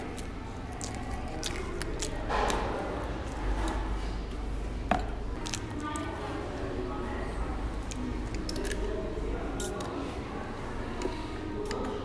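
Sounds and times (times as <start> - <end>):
person chewing: 0.0 - 4.2, 5.3 - 6.0, 7.7 - 9.0, 9.6 - 10.0
low room hum: 0.0 - 12.0.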